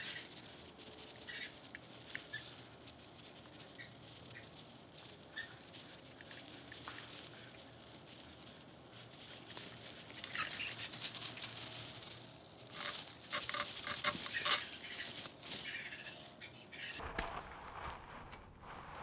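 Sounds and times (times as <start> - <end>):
plastic sleeve scraping metal: 12.7 - 14.7.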